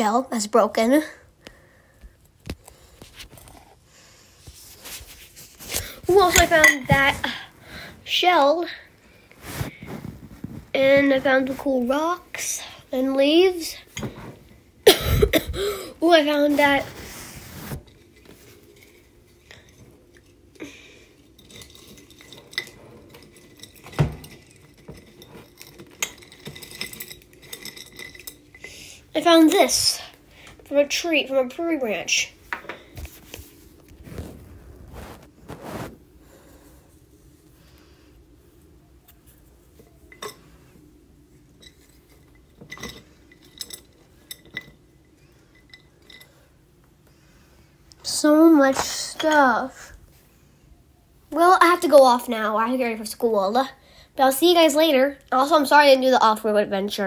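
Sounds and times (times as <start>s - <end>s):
glass jar and metal lid clinking: 21.2s - 28.6s, 41.6s - 44.8s.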